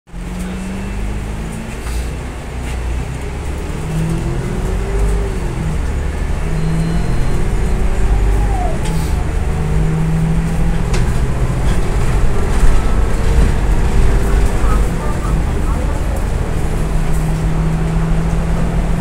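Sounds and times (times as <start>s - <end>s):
bus engine droning under load: 0.1s - 19.0s
road noise: 0.1s - 19.0s.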